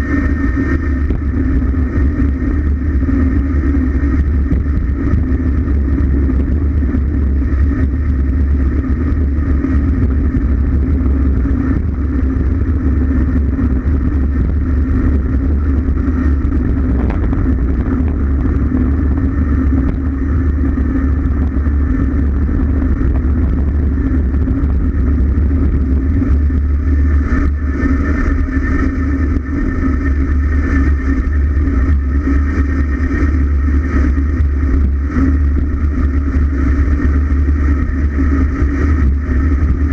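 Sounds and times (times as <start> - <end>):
bicycle tyres on asphalt: 0.0 - 39.9
wind roar on microphone: 0.0 - 39.9.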